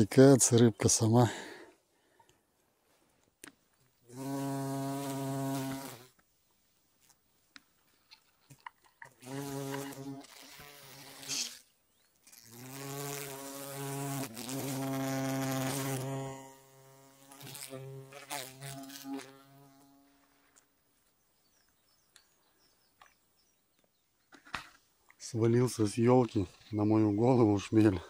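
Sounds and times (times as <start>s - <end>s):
bumblebee buzzing: 4.1s - 6.2s, 9.1s - 20.3s.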